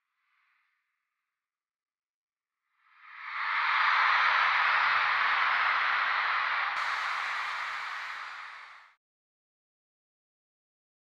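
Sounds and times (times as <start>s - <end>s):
steady rushing hiss: 6.8s - 8.8s.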